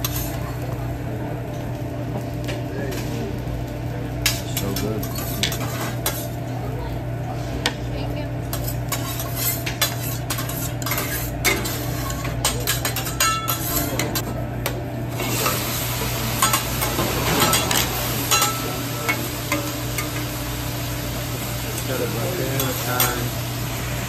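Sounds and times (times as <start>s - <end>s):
metal spatulas scraping on griddle: 0.0s - 0.4s, 4.2s - 6.4s, 8.5s - 14.3s, 16.4s - 18.8s
vegetables sizzling on griddle: 0.0s - 14.3s, 15.0s - 24.0s.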